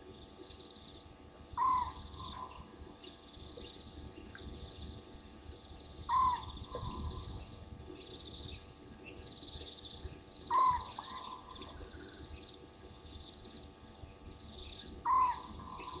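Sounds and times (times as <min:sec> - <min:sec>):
night animal calls: 0:01.6 - 0:02.7, 0:06.1 - 0:07.2, 0:10.5 - 0:12.1, 0:15.0 - 0:16.0.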